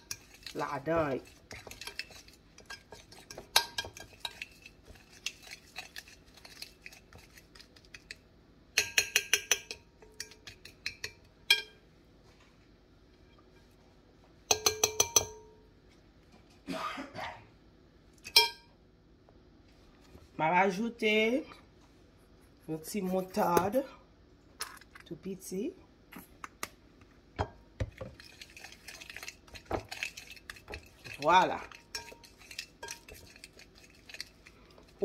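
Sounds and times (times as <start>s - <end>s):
fork scraping paste in glass bowl: 0.0s - 8.2s, 28.0s - 35.0s
fork tapping glass bowl: 8.8s - 11.8s, 14.5s - 15.5s.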